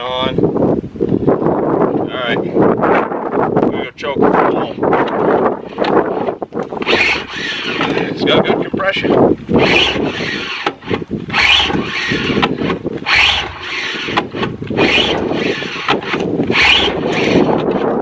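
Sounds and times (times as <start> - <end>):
recoil cord rasping pulls: 5.0 - 8.6, 9.4 - 18.0
engine turning over: 5.7 - 8.4, 9.4 - 17.9.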